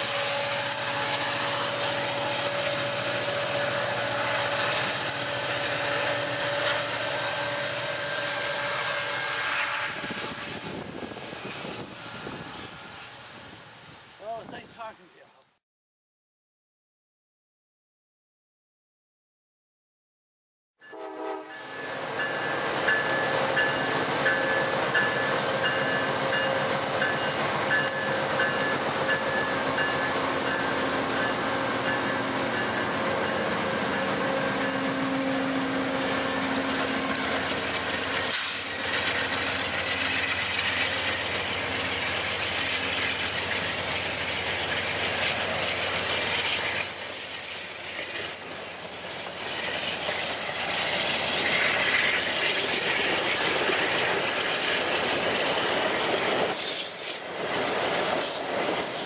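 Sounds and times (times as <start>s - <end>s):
train horn: 0.0s - 10.7s, 20.8s - 21.9s
high wheel squeal: 0.0s - 10.8s, 21.5s - 44.1s, 46.3s - 53.5s, 56.4s - 57.6s, 58.2s - 59.0s
diesel locomotive engine running: 0.0s - 14.0s, 21.3s - 59.0s.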